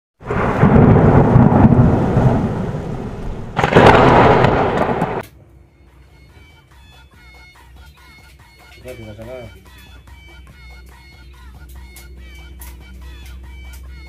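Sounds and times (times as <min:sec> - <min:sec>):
thunder clap: 0:00.2 - 0:05.3
thunder rumbling: 0:00.2 - 0:05.3.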